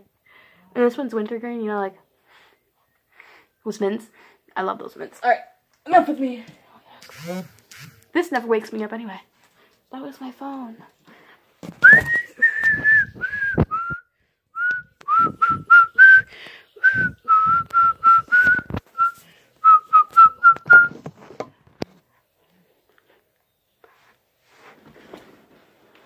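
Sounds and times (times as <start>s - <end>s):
person whistling a tune: 11.8s - 21.0s.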